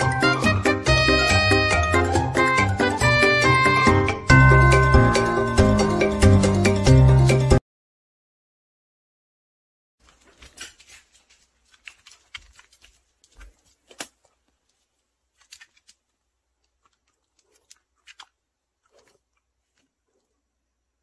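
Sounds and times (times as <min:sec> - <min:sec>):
dog claws clicking on hard floor: 0:10.1 - 0:14.4.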